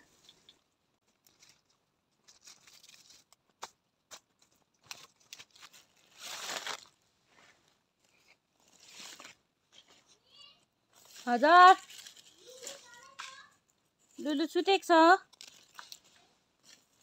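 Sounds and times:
rustling of leaves and stalks: 0.0 - 17.0
stalks snapping and crackling: 2.4 - 6.9, 15.2 - 16.9
loud tearing rustle: 4.8 - 7.0, 15.2 - 17.0.

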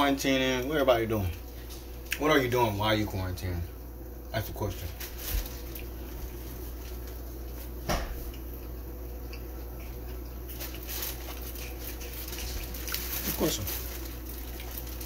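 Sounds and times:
pans cooking hum: 0.0 - 15.0.

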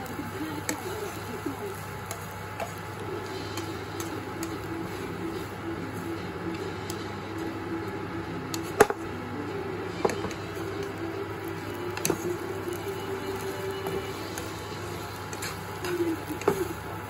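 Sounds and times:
food sizzling in wok: 0.0 - 17.0
spatula clacking against pan: 2.0 - 4.7, 8.5 - 9.0, 11.9 - 16.8.

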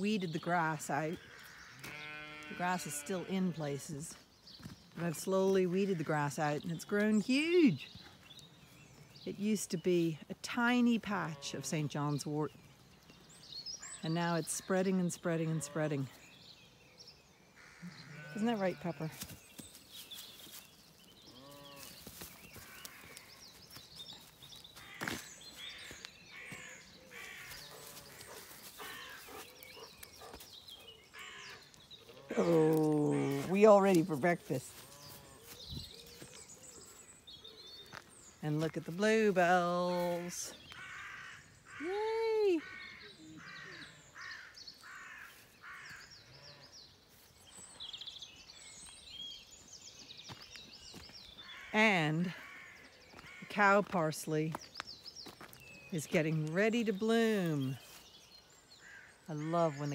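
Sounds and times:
songbirds chirping: 0.0 - 59.9
sheep bleat: 1.2 - 3.6, 17.6 - 19.2
crow cawing harshly: 40.8 - 41.8.

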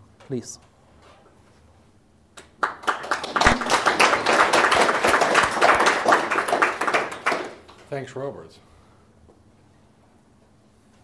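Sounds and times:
audience applauding: 2.6 - 7.8.

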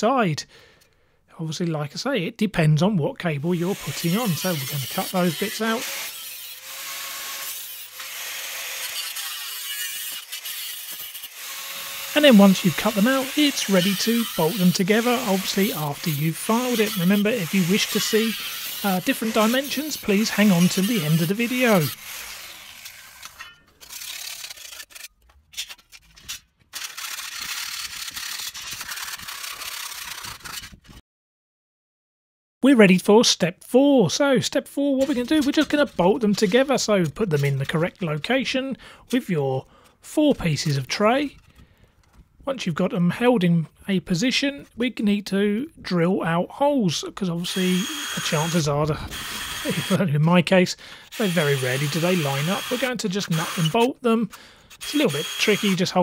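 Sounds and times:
angle grinder cutting metal: 3.6 - 25.1, 26.7 - 30.8, 35.0 - 38.1, 47.4 - 50.1, 51.0 - 56.0
file rasping on steel: 3.7 - 25.1, 47.6 - 50.0, 51.1 - 53.8, 54.7 - 55.8.

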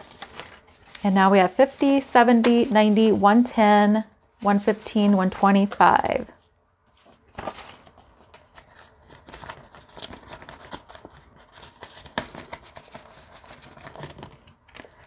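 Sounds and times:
paper and plastic rustling: 0.0 - 3.4, 6.9 - 15.0.

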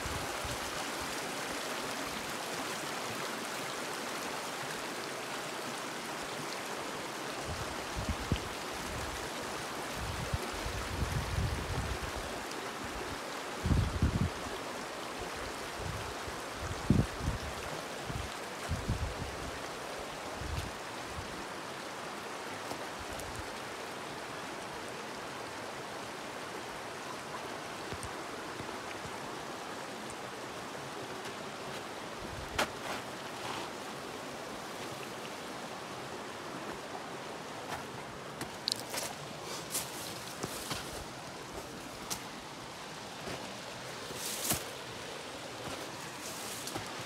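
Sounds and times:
creek water running: 0.0 - 47.0.

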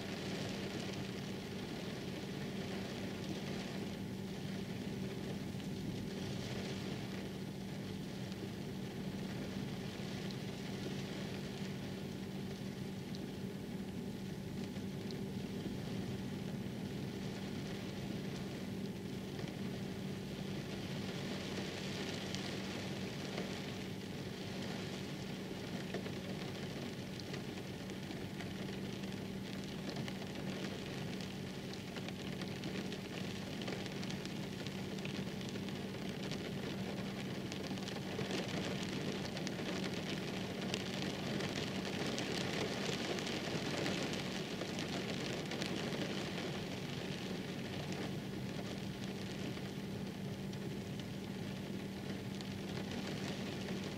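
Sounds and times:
steady rain falling: 0.0 - 53.9
raindrops ticking: 25.2 - 53.9.

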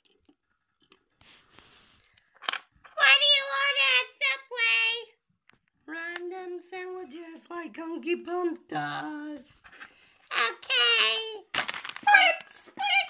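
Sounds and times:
high-pitched wordless sing-song voice: 5.8 - 9.6, 10.3 - 13.0.

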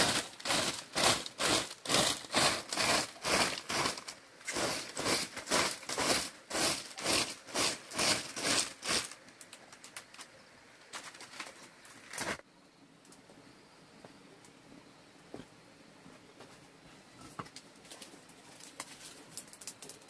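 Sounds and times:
broom sweeping dirt floor: 0.0 - 9.4.

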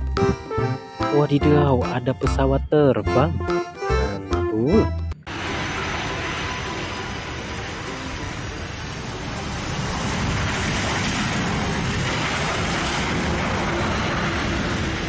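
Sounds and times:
jet engine roar: 5.3 - 15.0.

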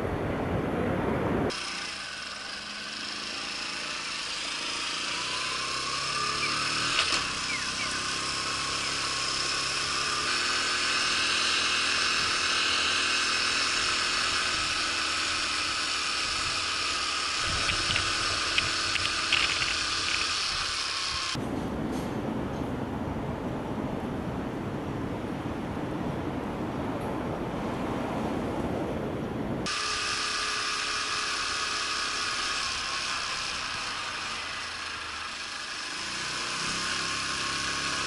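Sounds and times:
small motorcycle engine: 1.5 - 21.4, 29.7 - 38.0.

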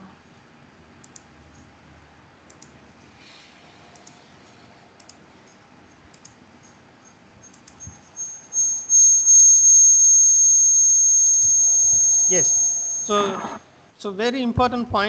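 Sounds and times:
computer mouse clicks: 1.0 - 1.7, 2.4 - 2.8, 3.8 - 8.0
high-pitched electronic whine: 6.6 - 13.7.

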